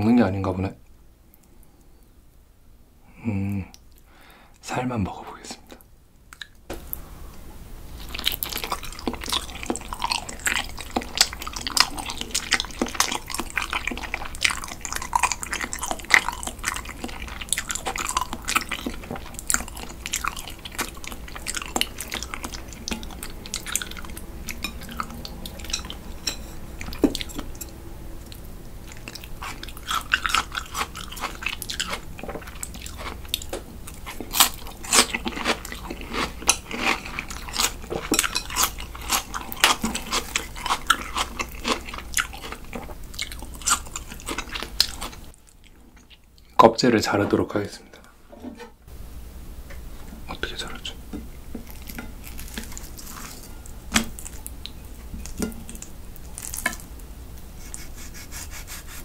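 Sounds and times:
chewing: 8.0s - 46.6s, 51.6s - 57.0s.

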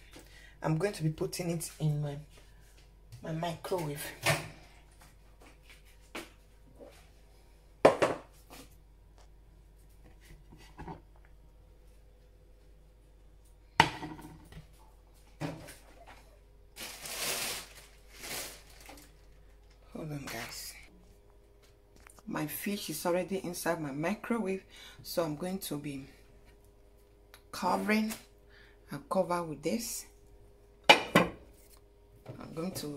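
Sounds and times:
rustling: 16.8s - 19.5s.

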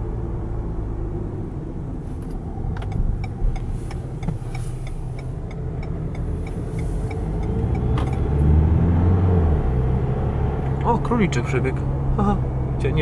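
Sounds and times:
car engine and tyre rumble: 0.0s - 13.0s
faint regular ticking: 2.8s - 8.3s.

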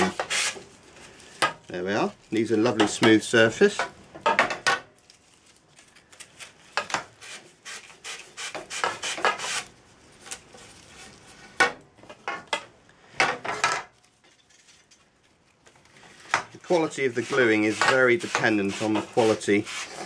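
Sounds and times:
sandpaper rubbing on pole: 0.0s - 0.6s, 7.2s - 9.7s, 16.6s - 20.0s.

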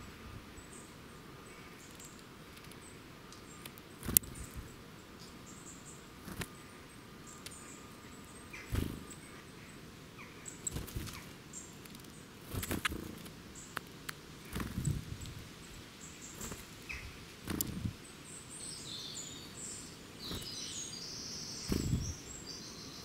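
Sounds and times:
faint high bird calls: 0.0s - 13.8s
birds pecking on seed and stones: 1.7s - 5.4s, 6.2s - 6.8s, 8.5s - 18.0s, 20.2s - 20.8s, 21.6s - 22.2s
wing flutters: 4.0s - 4.6s, 6.2s - 6.6s, 8.6s - 9.2s, 10.6s - 13.4s, 14.4s - 15.4s, 16.3s - 18.0s, 20.2s - 20.6s, 21.6s - 22.2s.

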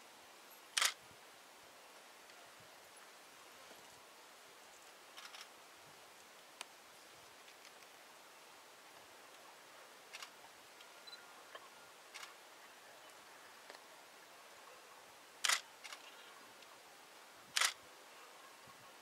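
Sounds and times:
faint steady hiss: 0.0s - 19.0s
camera shutter clicks: 0.8s - 1.0s, 15.4s - 16.0s, 17.6s - 17.8s.

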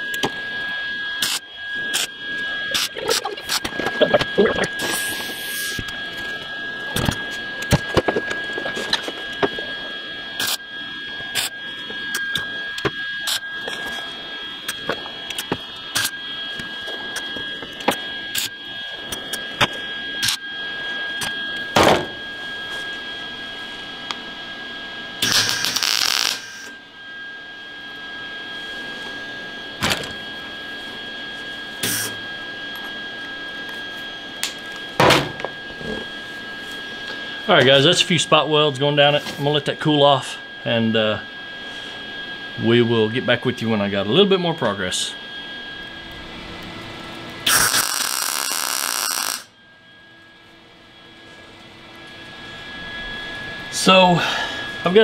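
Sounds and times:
high-pitched whine: 0.0s - 55.0s
welding arc bursts: 1.2s - 2.1s, 2.7s - 5.8s, 25.2s - 26.8s, 47.4s - 49.5s.

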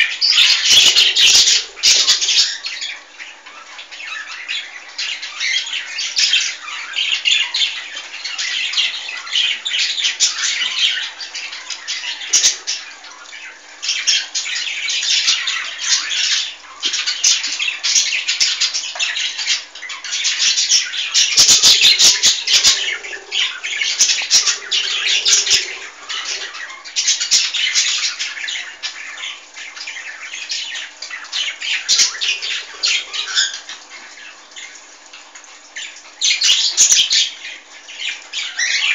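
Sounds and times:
bird chick raspy squawking: 0.0s - 2.7s, 20.8s - 28.9s.

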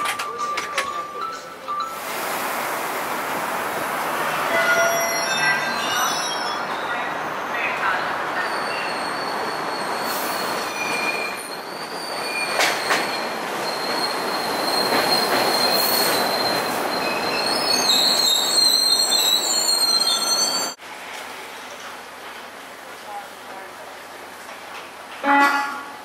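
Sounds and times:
subway train slowing to a stop: 0.0s - 26.0s
high-pitched brake squeal: 4.4s - 7.7s, 8.4s - 20.8s.

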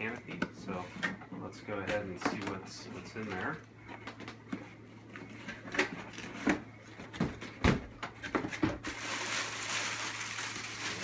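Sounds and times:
plastic wrapping rustling: 8.4s - 11.0s.

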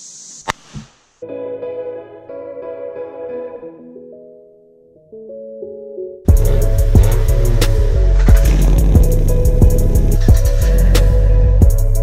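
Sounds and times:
beat with heavy bass: 6.3s - 12.0s.

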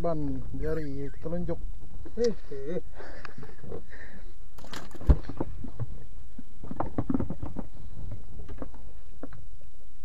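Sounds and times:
wind and water rumble: 0.0s - 10.0s
fishing gear knocking and clattering: 6.6s - 9.4s.

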